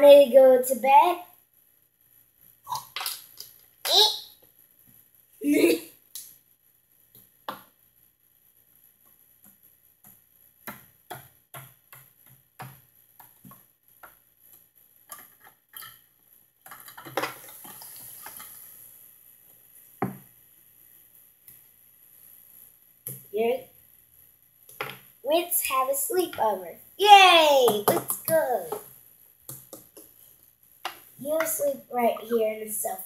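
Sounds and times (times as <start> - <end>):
soft rustling hiss: 0.0 - 33.0
plastic toys clicking and knocking: 2.8 - 4.0, 10.1 - 18.6, 27.6 - 28.9, 29.5 - 30.1.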